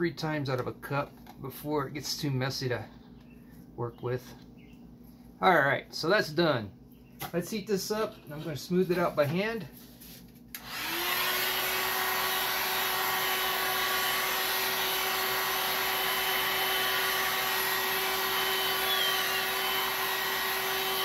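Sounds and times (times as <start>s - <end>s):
heat gun fan blowing: 10.5s - 21.0s.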